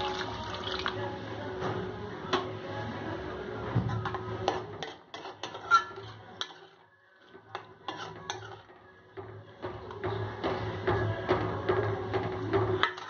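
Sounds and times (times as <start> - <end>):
metal ladle scraping a wok: 4.0 - 8.7, 12.8 - 13.0.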